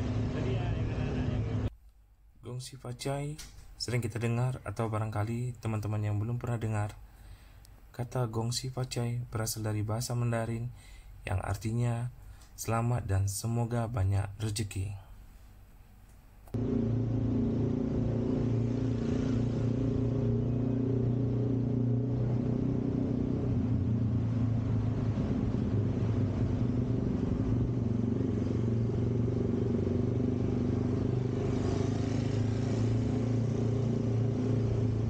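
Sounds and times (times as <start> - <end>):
passing motorbike: 0.0 - 1.7, 16.6 - 35.0
road and wind noise: 0.0 - 1.7, 16.5 - 35.0
vehicle engine running: 0.0 - 1.7, 16.5 - 35.0.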